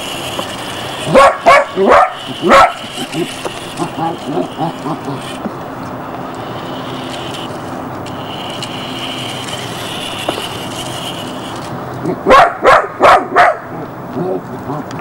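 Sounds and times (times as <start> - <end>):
toy car electric motor whining: 0.0 - 12.3
puppy barking: 1.0 - 5.2, 12.2 - 14.4.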